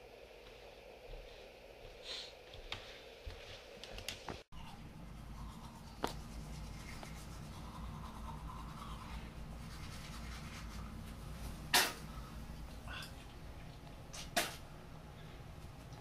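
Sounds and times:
toothbrush scrubbing teeth: 4.6s - 11.2s
low hum: 4.6s - 16.0s.

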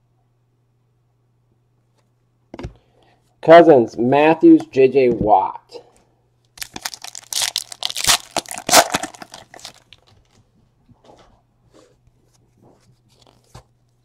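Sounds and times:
plastic packaging crinkling and tearing: 6.6s - 10.4s.

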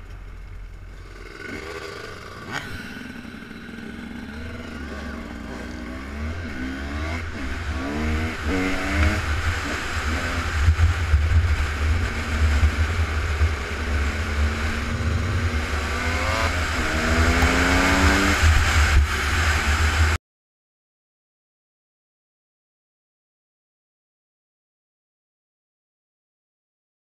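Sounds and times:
heavy low rumble: 0.0s - 20.2s
race car engines accelerating: 0.9s - 20.2s.

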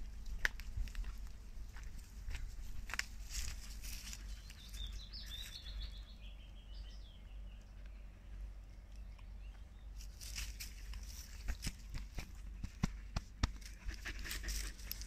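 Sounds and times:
wind rumble on microphone: 0.0s - 3.8s
rustles: 0.0s - 6.0s, 9.9s - 15.0s
songbird singing: 0.0s - 15.0s.

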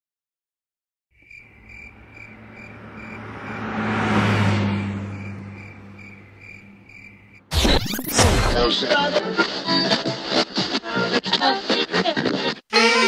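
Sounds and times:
crickets chirping: 1.2s - 7.5s
vehicle passing: 1.4s - 7.5s.

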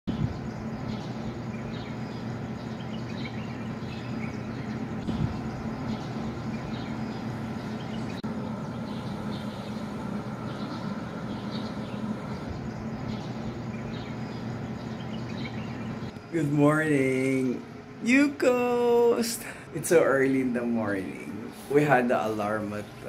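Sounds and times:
birds chirping: 0.1s - 23.0s
steady low hum: 0.1s - 23.0s.

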